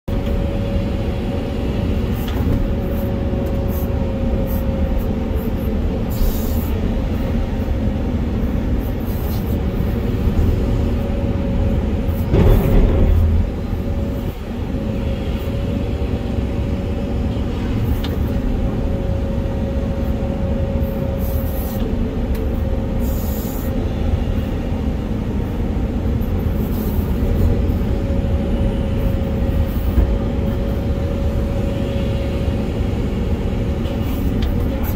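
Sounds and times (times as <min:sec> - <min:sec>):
excavator engine and hydraulics: 0:00.1 - 0:34.9
loud rumble: 0:10.0 - 0:16.3.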